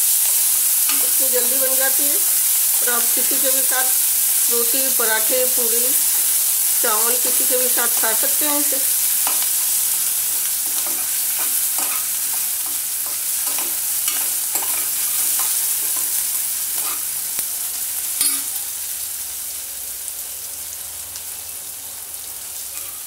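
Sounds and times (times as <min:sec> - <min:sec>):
food sizzling in oil: 0:00.0 - 0:23.0
spoon stirring and scraping: 0:09.1 - 0:17.1
sharp metallic clink: 0:18.2 - 0:18.5.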